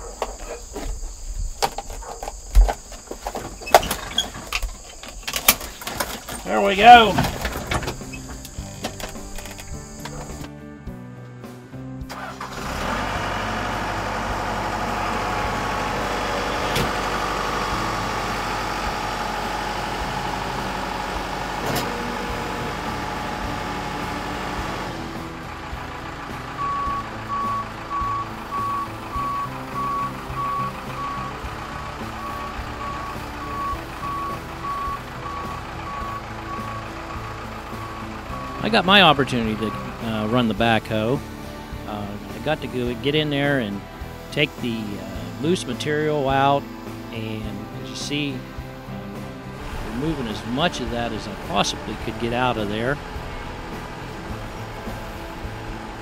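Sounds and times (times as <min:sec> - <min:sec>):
diesel engine running: 0:02.3 - 0:11.1, 0:11.8 - 0:56.0
backup alarm short beeps: 0:26.6 - 0:31.3, 0:32.3 - 0:36.7.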